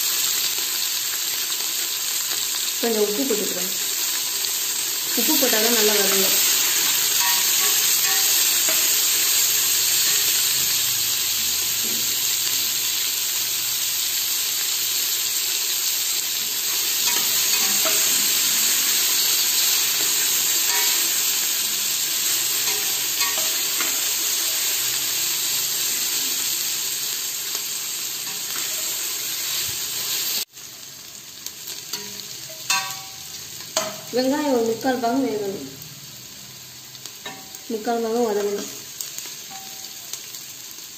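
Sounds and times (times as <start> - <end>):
onions sizzling in hot oil: 0.0 - 40.9
metal spatula scraping pan: 6.3 - 9.2.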